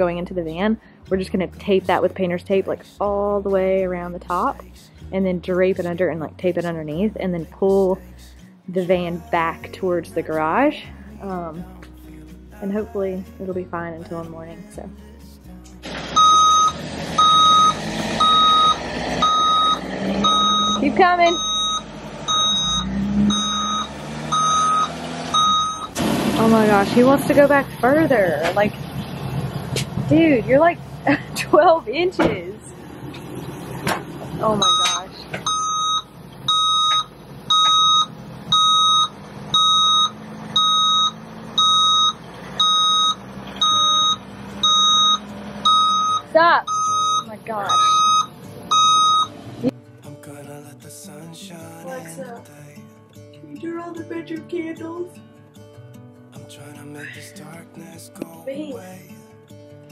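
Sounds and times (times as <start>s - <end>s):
reversing alarm beeping: 16.2s - 26.0s, 34.6s - 49.4s.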